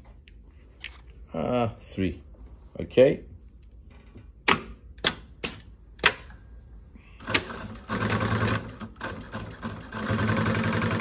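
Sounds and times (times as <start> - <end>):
industrial sewing machine stitching: 7.2 - 11.0.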